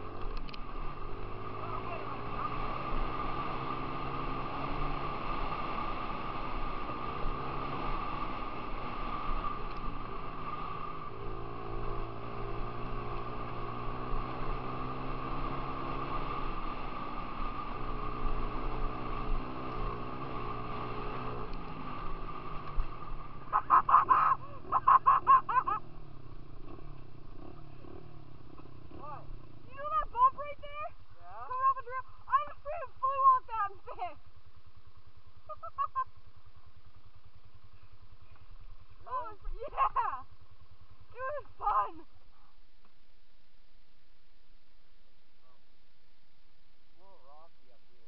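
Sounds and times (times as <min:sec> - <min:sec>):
dirt bike engine revving: 0:00.0 - 0:30.8.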